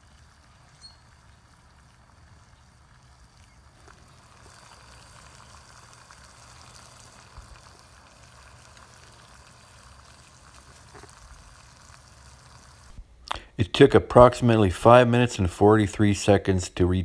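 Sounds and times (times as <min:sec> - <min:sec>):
fine crackle of stove: 0:00.0 - 0:13.5
kettle water boiling: 0:00.0 - 0:16.9.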